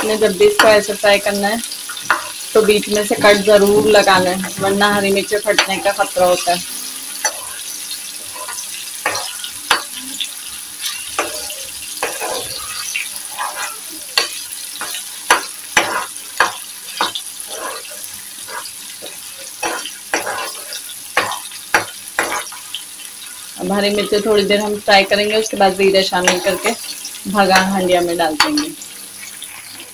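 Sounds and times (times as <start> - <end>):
vegetables sizzling in hot oil: 0.0 - 29.9
metal ladle scraping a pan: 1.9 - 10.2, 10.8 - 22.7.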